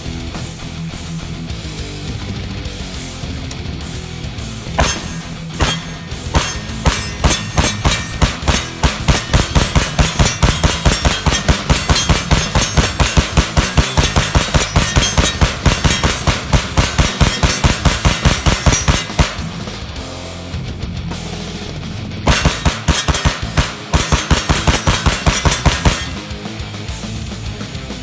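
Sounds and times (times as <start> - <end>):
pistol firing rapid shots: 4.8 - 19.5, 22.3 - 26.2.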